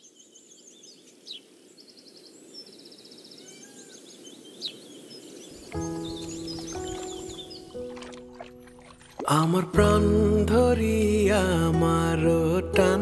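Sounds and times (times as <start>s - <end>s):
sharp bird calls: 0.0s - 9.3s
birds chirping and trilling: 0.0s - 9.5s.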